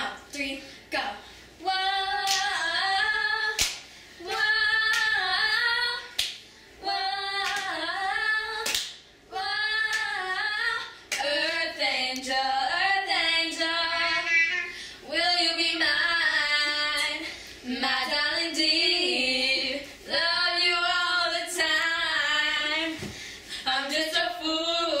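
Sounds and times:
girls singing together: 0:00.0 - 0:25.0
sharp clap: 0:02.3 - 0:02.5, 0:03.6 - 0:05.2, 0:06.2 - 0:06.4, 0:07.4 - 0:07.7, 0:08.6 - 0:09.0, 0:11.1 - 0:11.3.

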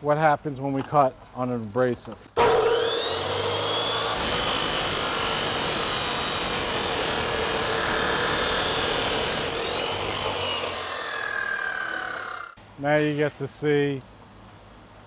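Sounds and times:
saw motor whine: 0:02.4 - 0:12.6.

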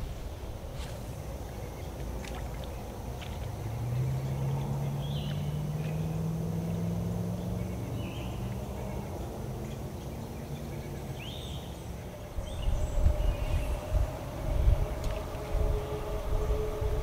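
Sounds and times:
low rumbling bursts: 0:00.0 - 0:05.6, 0:12.2 - 0:17.0
birds chirping: 0:00.0 - 0:17.0
motor humming: 0:12.6 - 0:17.0.

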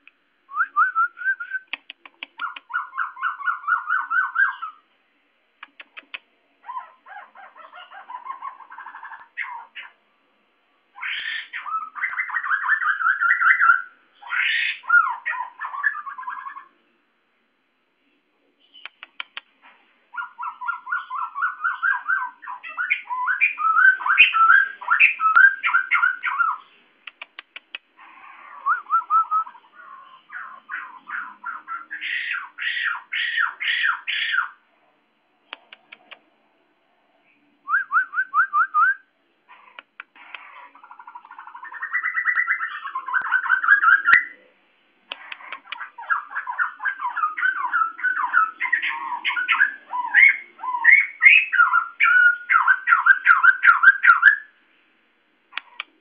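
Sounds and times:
bird chattering calls: 0:01.8 - 0:04.8, 0:05.6 - 0:10.0, 0:11.0 - 0:16.7, 0:20.1 - 0:34.6, 0:39.5 - 0:44.4, 0:45.1 - 0:54.4.

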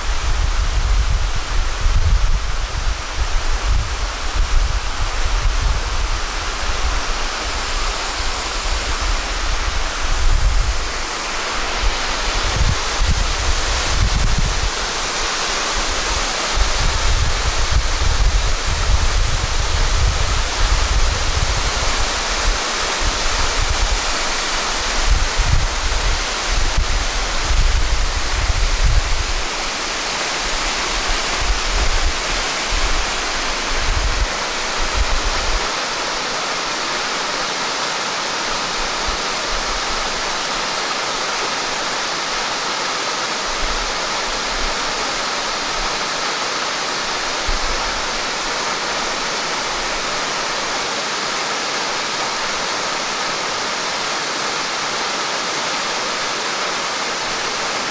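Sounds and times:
wind buffeting microphone: 0:00.0 - 0:35.8
waterfall rushing onto rock: 0:00.0 - 0:57.9.

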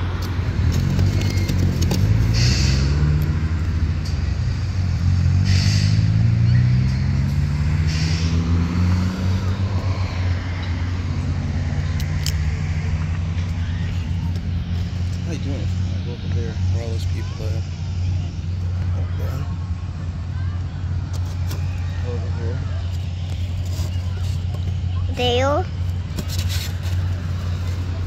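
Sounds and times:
vehicle engine pulling away: 0:00.0 - 0:25.1
low rumble of traffic: 0:00.0 - 0:28.0.

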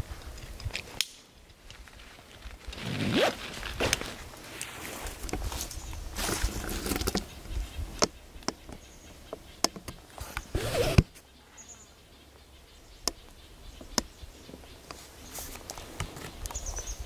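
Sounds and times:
rustle: 0:00.0 - 0:17.0
bird chirp: 0:05.5 - 0:17.0.

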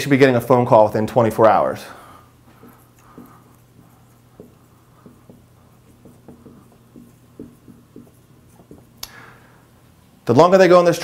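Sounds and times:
marker squeaking on whiteboard: 0:02.4 - 0:09.1.

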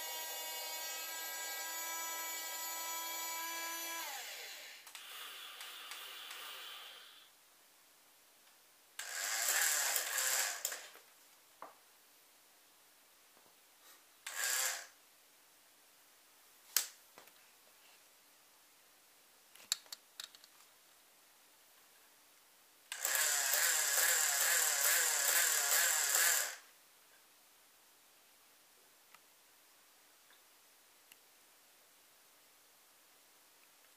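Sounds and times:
toy electric motor whirring: 0:00.0 - 0:07.2, 0:09.0 - 0:10.9, 0:14.3 - 0:15.0, 0:22.9 - 0:26.7.

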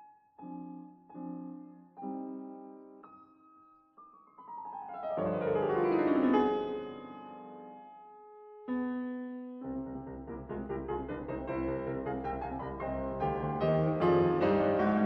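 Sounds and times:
piano chords: 0:00.0 - 0:15.0.

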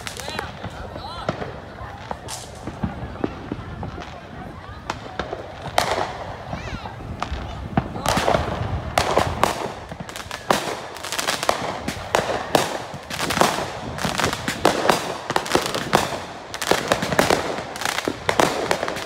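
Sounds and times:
fireworks bangs and crackles: 0:00.0 - 0:19.0.

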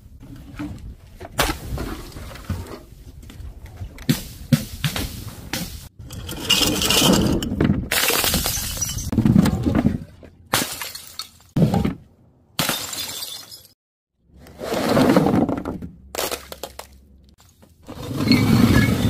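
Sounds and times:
objects crashing and scattering: 0:06.0 - 0:12.0
bottle smashing: 0:07.9 - 0:09.1, 0:10.6 - 0:11.5, 0:12.6 - 0:13.8.

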